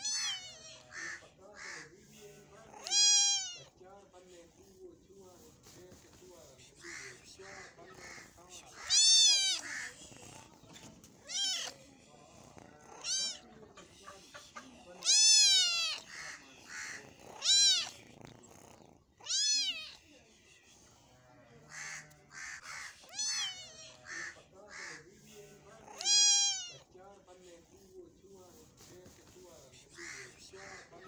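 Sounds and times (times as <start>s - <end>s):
kitten meowing: 0.0s - 0.7s, 2.8s - 3.7s, 8.8s - 9.9s, 11.2s - 11.8s, 12.9s - 13.4s, 15.0s - 16.1s, 17.4s - 18.0s, 19.2s - 20.0s, 23.1s - 23.8s, 25.9s - 26.8s.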